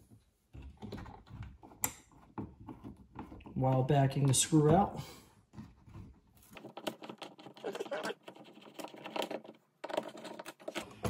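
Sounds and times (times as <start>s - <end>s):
screwdriver clicking and scraping: 6.5s - 11.0s.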